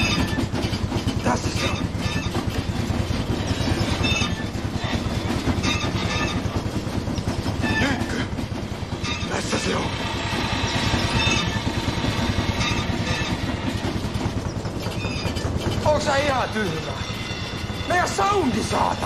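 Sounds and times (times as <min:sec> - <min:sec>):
fast pounding rhythm: 0:00.0 - 0:19.0
processing machine grinding: 0:00.0 - 0:19.0
scraping screeches: 0:00.0 - 0:19.0.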